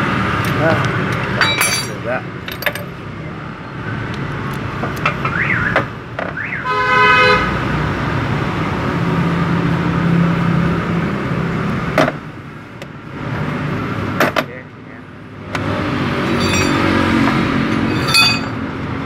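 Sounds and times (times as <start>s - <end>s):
road traffic rumble: 0.0s - 19.0s
vehicle horn toot: 6.6s - 7.5s.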